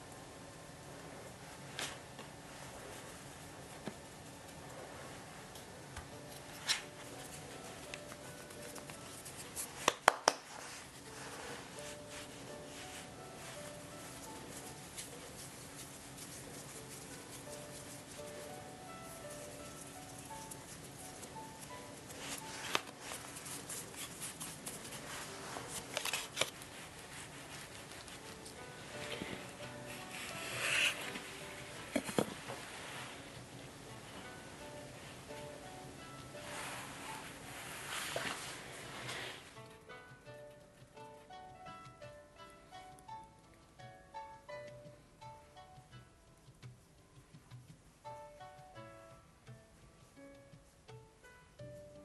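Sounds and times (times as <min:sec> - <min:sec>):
hands handling dough: 0:06.0 - 0:34.3.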